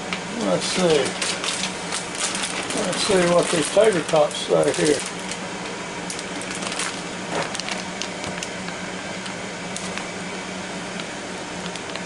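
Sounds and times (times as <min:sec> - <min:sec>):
air fryer fan hum: 0:00.0 - 0:12.0
plastic snack bag crinkling: 0:00.7 - 0:05.5, 0:06.1 - 0:08.6.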